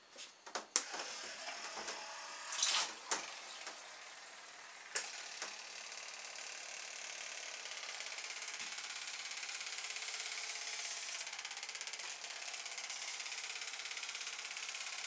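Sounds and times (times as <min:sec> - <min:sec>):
small electric motor whirring: 0:00.9 - 0:15.0
water splashing: 0:02.5 - 0:03.7.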